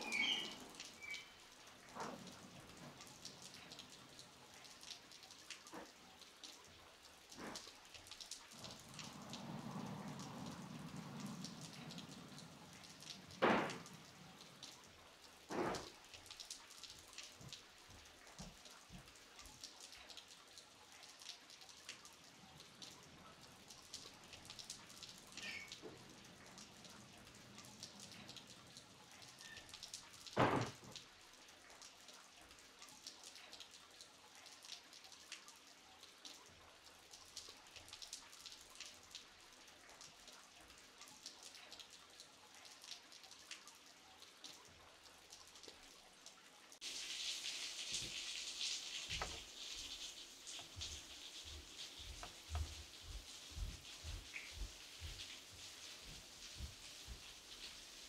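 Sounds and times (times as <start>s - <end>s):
light rain pattering: 0.0s - 58.0s
heavy drips landing close: 7.3s - 14.8s, 46.8s - 57.8s.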